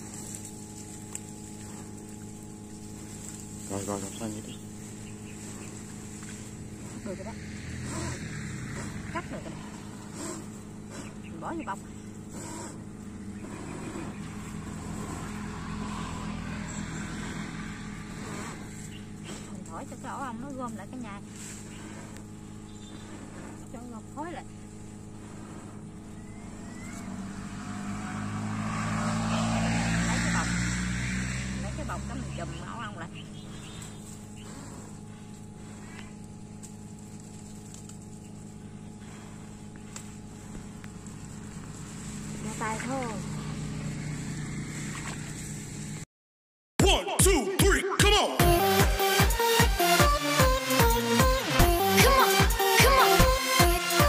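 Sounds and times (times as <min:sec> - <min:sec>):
even hiss: 0:00.0 - 0:11.2
engine humming: 0:00.0 - 0:46.0, 0:48.4 - 0:54.0
steady low drone: 0:00.0 - 0:46.0, 0:48.4 - 0:54.0.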